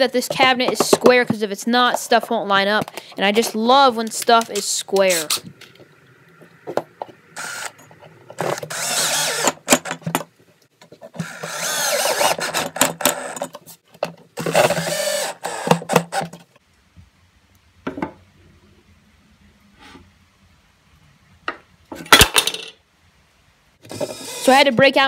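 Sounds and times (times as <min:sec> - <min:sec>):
cordless drill driving screws: 0:07.4 - 0:07.8, 0:08.4 - 0:09.9, 0:11.2 - 0:13.5, 0:14.4 - 0:16.3, 0:23.8 - 0:24.6.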